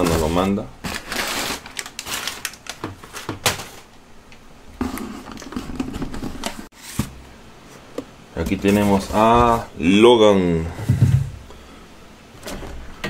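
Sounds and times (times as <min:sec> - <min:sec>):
handling of cardboard box: 0:00.0 - 0:03.5
packing paper rustling and crinkling: 0:00.0 - 0:03.9.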